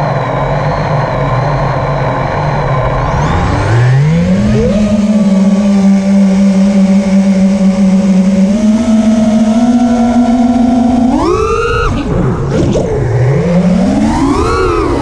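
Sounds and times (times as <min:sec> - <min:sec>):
drone motors whining: 0:00.0 - 0:15.0
rushing air: 0:01.3 - 0:05.1.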